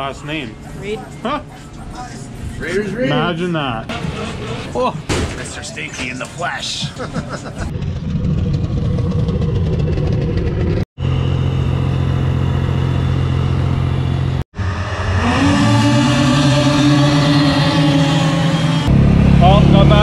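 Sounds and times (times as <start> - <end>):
snowmobile engines running: 6.8 - 20.0.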